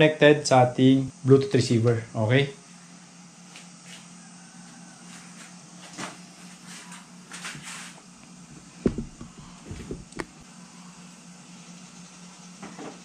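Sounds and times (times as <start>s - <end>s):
steady low hum: 0.0s - 13.0s
small knocks: 8.5s - 10.4s
heavy thump: 8.8s - 10.4s.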